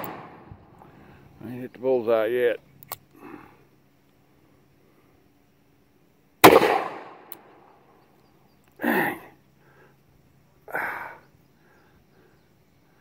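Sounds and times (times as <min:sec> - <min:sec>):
revolver gunshot: 0:00.0 - 0:00.5, 0:06.4 - 0:07.3.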